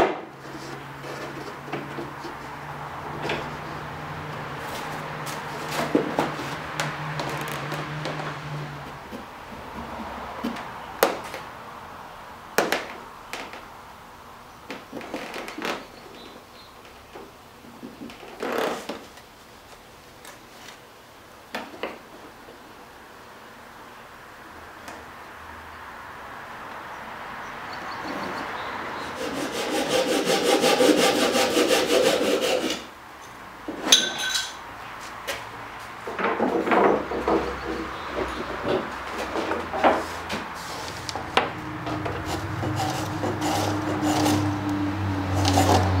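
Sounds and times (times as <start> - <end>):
wooden strips clicking and knocking: 5.3 - 8.4, 36.0 - 40.5
hand saw cutting wood: 29.0 - 32.9, 37.2 - 46.0.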